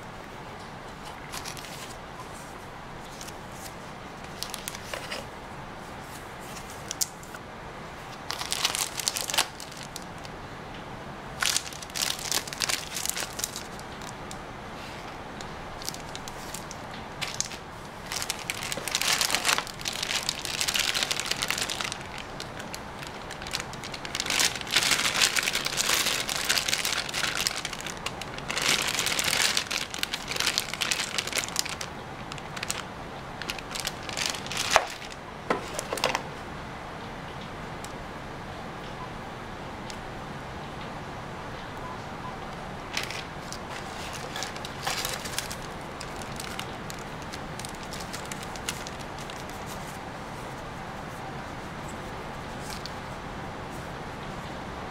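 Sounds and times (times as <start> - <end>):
plastic bags crinkling: 1.2 - 2.0, 4.2 - 5.3, 8.2 - 10.3, 11.4 - 14.4, 15.3 - 36.2, 42.9 - 50.7.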